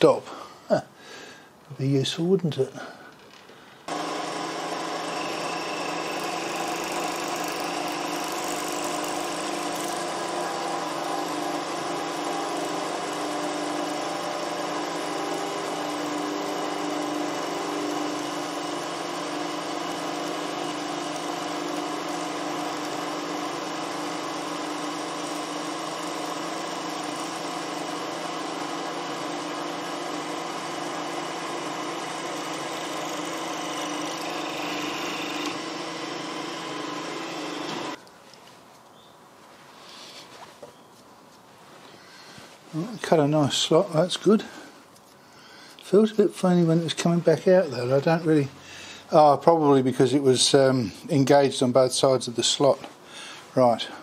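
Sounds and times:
milling machine whine: 3.9s - 38.0s.

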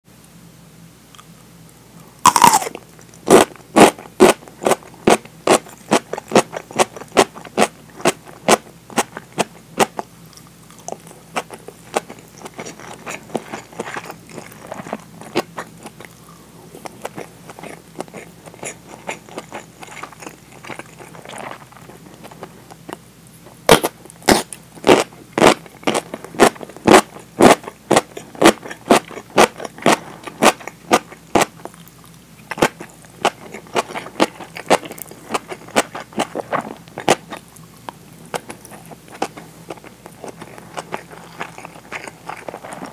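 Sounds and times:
crunching pickled radish: 1.1s - 42.9s
soft chewing: 1.1s - 42.9s.

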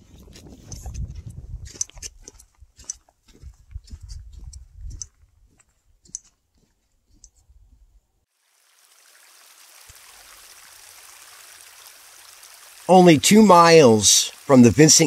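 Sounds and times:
footsteps crunching on snow: 0.0s - 7.4s
spring water running: 8.3s - 15.0s.

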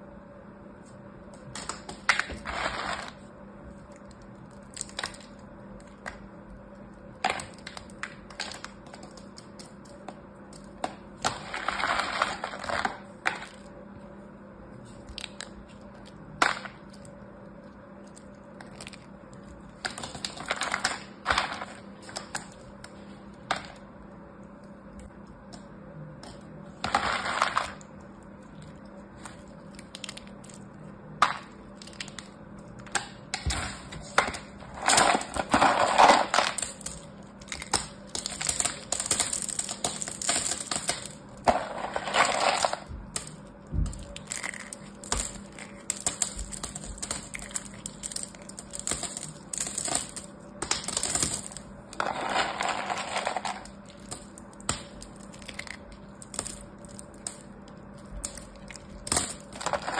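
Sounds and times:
soap shavings crackling and crunching: 3.9s - 6.2s, 27.0s - 30.7s.

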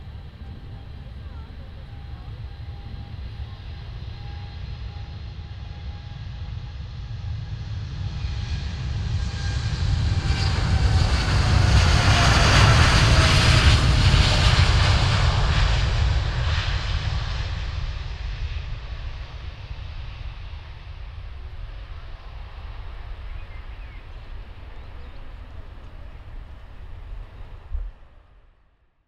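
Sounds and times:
jet airliner passing: 0.0s - 28.4s.

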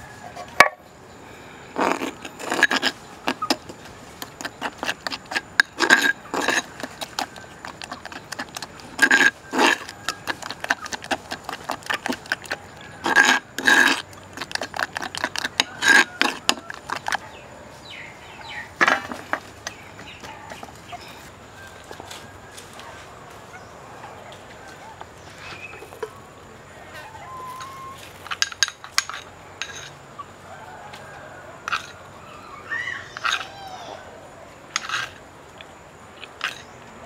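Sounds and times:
spoon scraping batter bowl: 1.8s - 17.4s.

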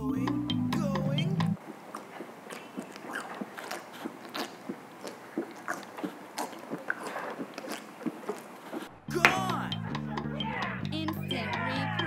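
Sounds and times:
person gulping beer: 1.6s - 8.9s.

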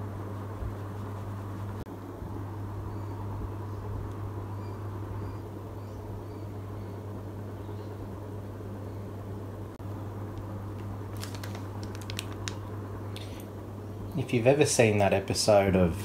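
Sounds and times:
low room hum: 0.0s - 16.0s
plastic bag crackling: 10.8s - 12.7s.

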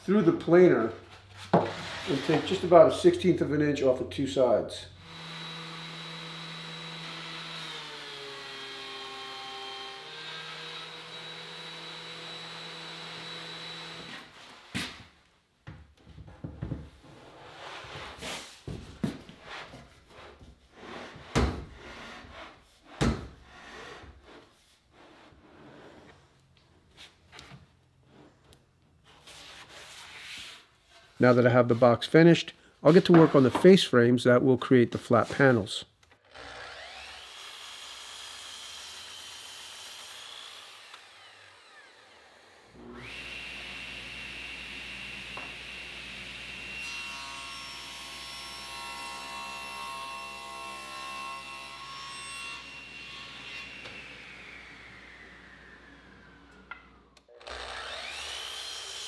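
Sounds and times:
table saw motor running: 5.0s - 14.2s, 36.3s - 59.0s
miter saw motor running: 36.3s - 38.6s, 40.0s - 45.1s, 57.4s - 59.0s.

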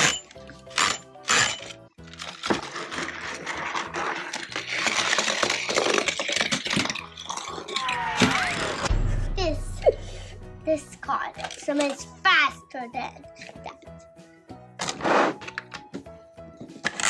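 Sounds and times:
toy cars rattling on plastic ramps: 0.0s - 8.8s, 16.8s - 17.0s
background music: 0.0s - 17.0s.

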